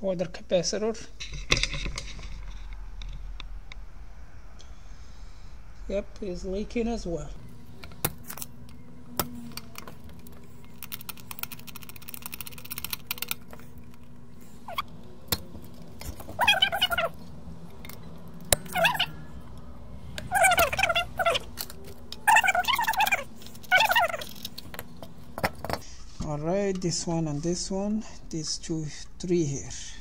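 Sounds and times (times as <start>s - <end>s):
animal wavering calls: 7.0s - 25.9s
desoldering pump snapping: 7.4s - 27.0s.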